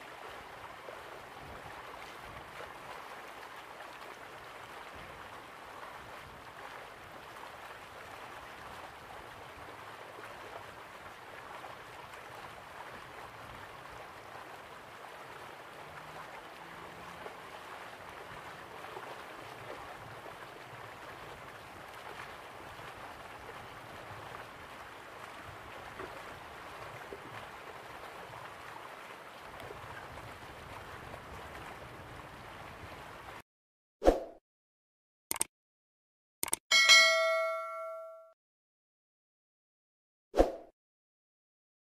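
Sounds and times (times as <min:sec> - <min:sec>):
rushing gurgling water: 0:00.0 - 0:33.4.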